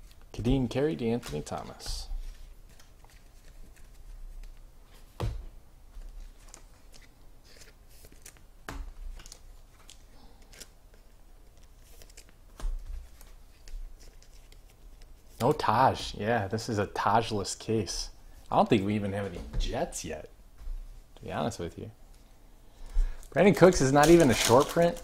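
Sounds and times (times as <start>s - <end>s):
cards ticking and rustling: 9.1s - 15.6s, 23.6s - 25.0s.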